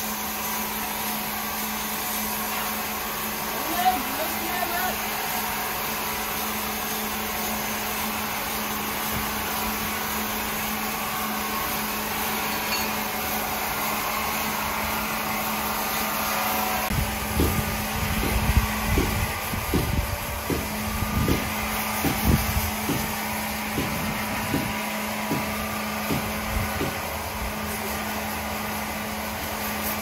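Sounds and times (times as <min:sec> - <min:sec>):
sawmill saw humming: 0:00.0 - 0:30.0
low thumps and knocks: 0:17.3 - 0:27.0.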